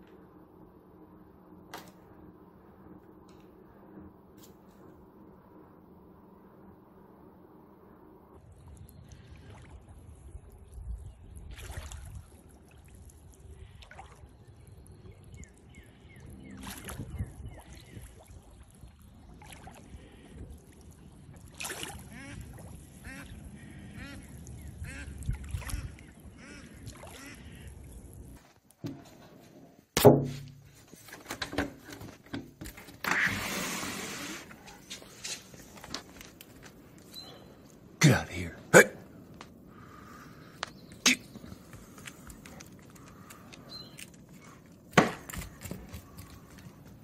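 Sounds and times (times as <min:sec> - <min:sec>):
duck quacking: 0:22.1 - 0:22.4, 0:23.0 - 0:27.7.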